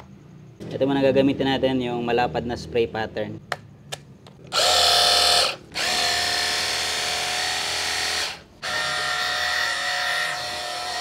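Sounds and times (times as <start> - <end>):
pump motor whining: 4.5 - 11.0.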